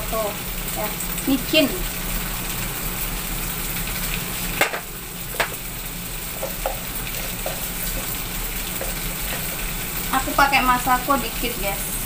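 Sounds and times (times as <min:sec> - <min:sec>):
food sizzling in a wok: 0:00.0 - 0:12.0.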